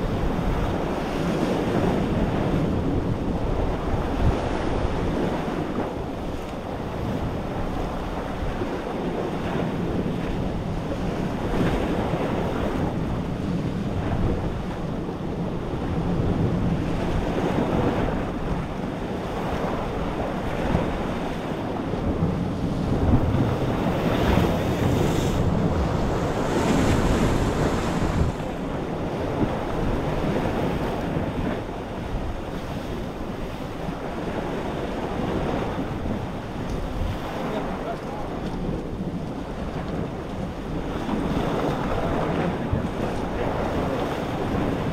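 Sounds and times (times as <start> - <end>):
wind buffeting microphone: 0.0 - 44.9
surf breaking on rocks: 19.4 - 44.9.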